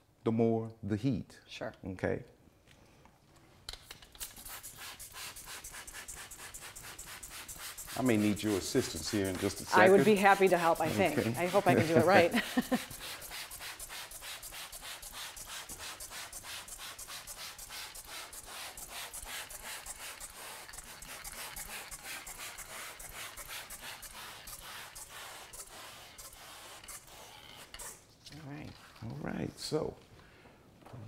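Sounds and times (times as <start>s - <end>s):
glass window being scrubbed: 4.3s - 28.0s.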